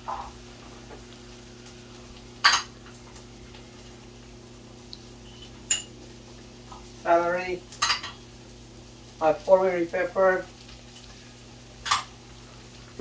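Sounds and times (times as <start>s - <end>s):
range hood fan humming: 0.0s - 13.0s
metal spoon clinking on cookware: 5.7s - 5.9s.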